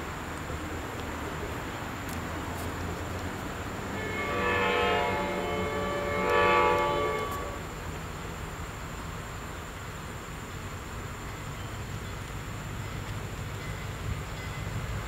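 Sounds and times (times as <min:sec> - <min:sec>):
train horn blasts: 0:03.8 - 0:07.8.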